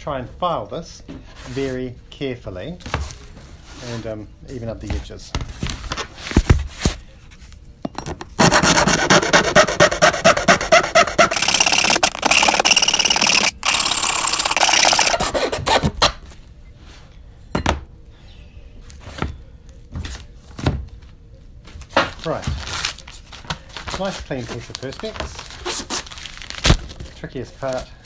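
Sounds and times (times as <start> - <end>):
hand file rasping on plastic: 8.4 - 15.9.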